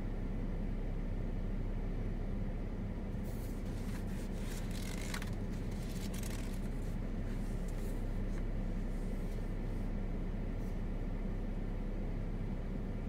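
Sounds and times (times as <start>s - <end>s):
low outdoor hum: 0.0s - 13.0s
scratchy rustles: 3.3s - 8.4s.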